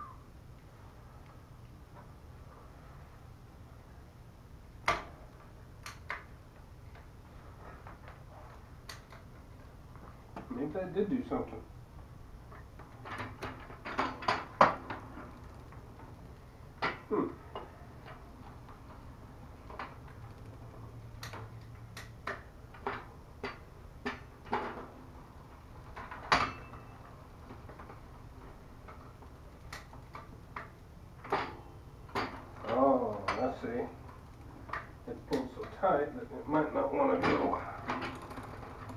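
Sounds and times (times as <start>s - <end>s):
bicycle drivetrain clicking: 12.6s - 16.5s, 18.6s - 24.3s, 37.4s - 38.9s.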